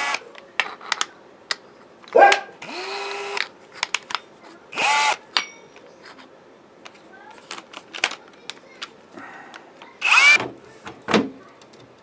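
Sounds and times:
cordless drill running: 0:00.0 - 0:00.2, 0:02.6 - 0:03.4, 0:04.7 - 0:05.2, 0:10.0 - 0:10.4
dog barking: 0:02.1 - 0:02.6
drill handling clicks: 0:02.6 - 0:04.2, 0:09.9 - 0:10.4.

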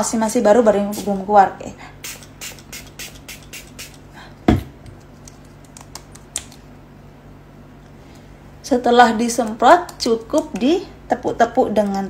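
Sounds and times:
spray bottle hissing: 0:02.0 - 0:04.0
single thump: 0:04.5 - 0:04.8.

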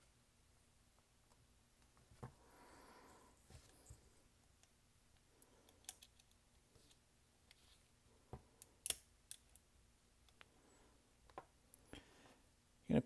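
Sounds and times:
small metal parts clicking: 0:05.6 - 0:06.4.

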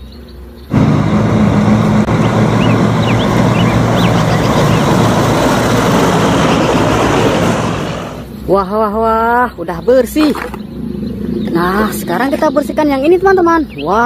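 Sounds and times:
truck diesel engine running: 0:00.7 - 0:08.4.

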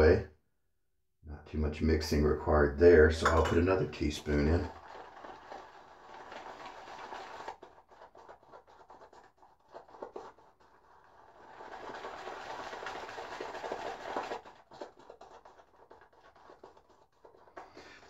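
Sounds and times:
shaving brush swirling lather: 0:04.1 - 0:18.0.

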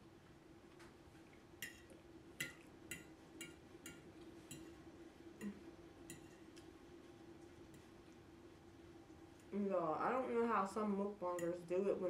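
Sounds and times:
faint low hum: 0:00.0 - 0:12.0
fork clinking on ceramic plate: 0:05.4 - 0:06.4.

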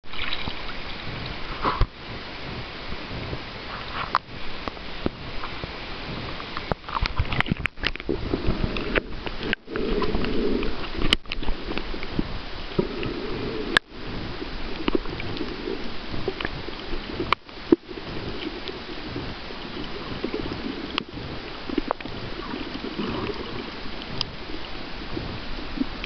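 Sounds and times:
water sloshing and splashing: 0:00.0 - 0:26.0
muffled underwater noise: 0:00.1 - 0:26.0
sharp underwater clicks: 0:06.4 - 0:13.9, 0:14.7 - 0:26.0.

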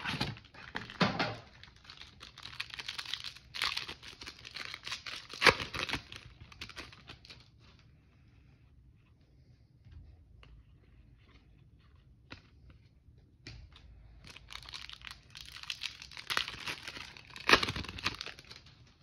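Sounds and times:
foil card pack crinkling and tearing: 0:00.0 - 0:07.4, 0:14.3 - 0:18.8.

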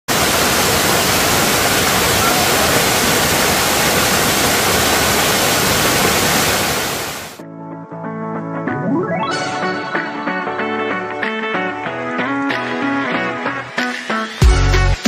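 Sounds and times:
waterfall rushing: 0:00.0 - 0:07.4.

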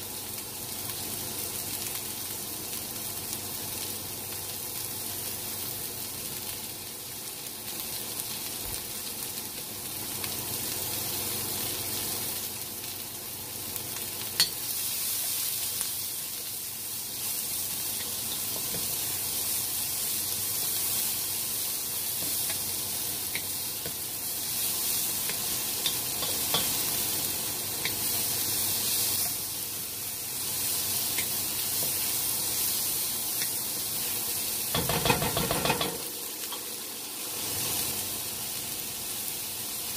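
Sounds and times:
onion and garlic sizzling in wok: 0:00.0 - 0:39.9.

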